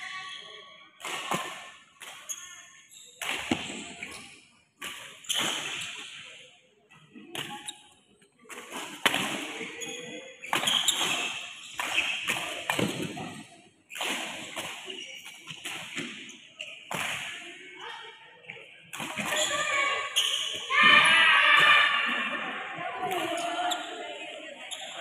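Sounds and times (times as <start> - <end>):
rackets hitting shuttlecock: 3.2 - 4.2, 8.7 - 16.2.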